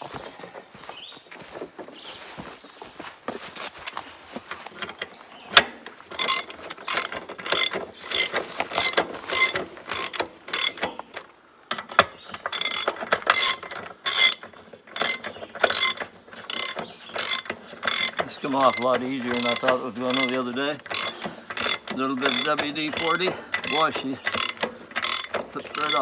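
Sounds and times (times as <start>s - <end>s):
ratchet wrench clicking: 6.1s - 11.1s, 11.7s - 26.0s.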